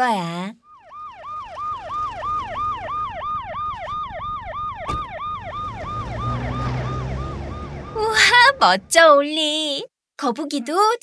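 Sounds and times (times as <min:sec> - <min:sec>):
cartoon siren yelping: 0:00.7 - 0:09.0.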